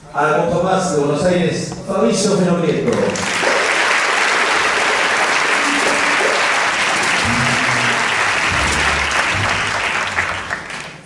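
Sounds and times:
audience applauding: 2.9 - 11.0
plucked double bass notes: 5.7 - 10.7.

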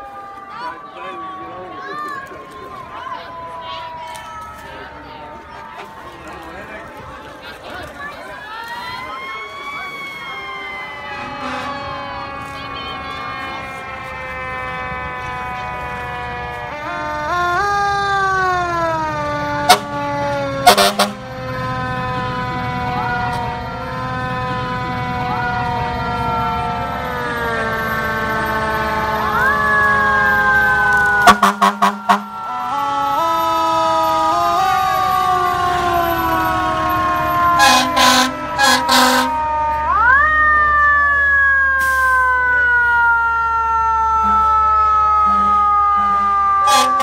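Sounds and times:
fire truck sirens: 0.0 - 47.0
loud horn blasts: 11.2 - 17.3, 19.6 - 20.0, 20.6 - 21.3, 31.2 - 33.1, 36.4 - 39.4, 44.2 - 44.6, 45.2 - 47.0.

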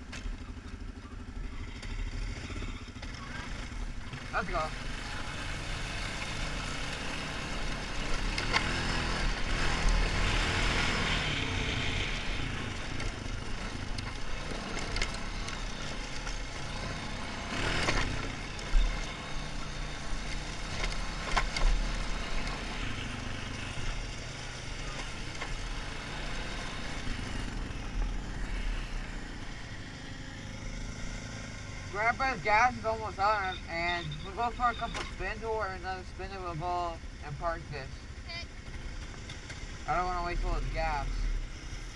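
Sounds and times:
quad bike engine running: 0.0 - 41.9.

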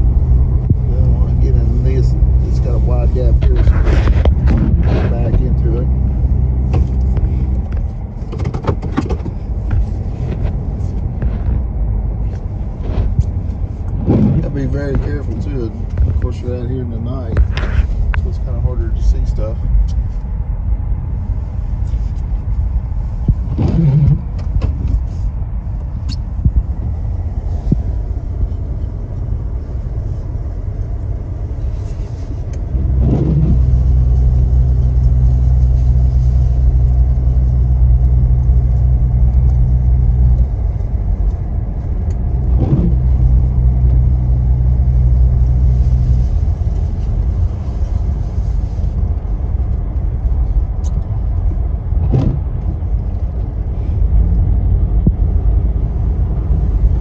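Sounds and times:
deep steady hum: 0.0 - 57.0
truck cab rumble: 0.0 - 57.0.

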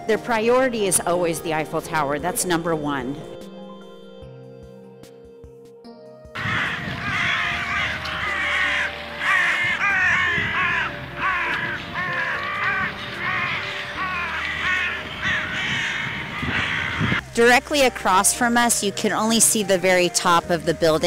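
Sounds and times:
crows cawing: 6.4 - 17.2.

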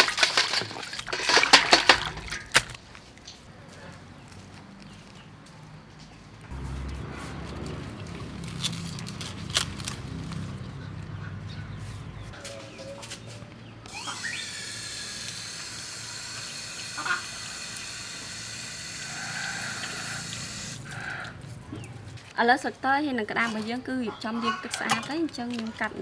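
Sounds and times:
leaves snapping and rustling: 6.8 - 10.7
water running from garden hose: 13.9 - 21.0.

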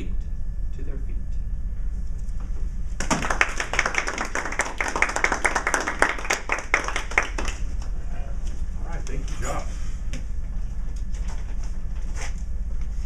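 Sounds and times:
small audience clapping: 3.0 - 8.0.

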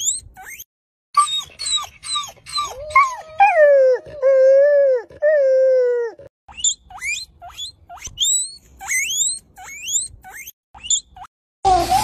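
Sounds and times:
high-pitched rising squeaks: 6.5 - 12.0.

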